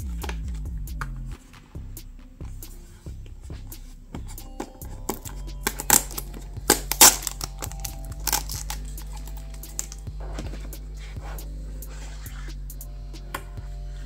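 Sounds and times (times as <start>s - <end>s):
low steady hum: 0.0s - 14.0s
blade slitting paper seal: 5.8s - 10.0s.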